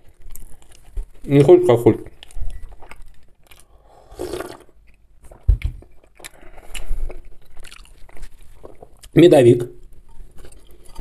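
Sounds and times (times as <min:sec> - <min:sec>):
person chewing cake: 0:00.0 - 0:09.2.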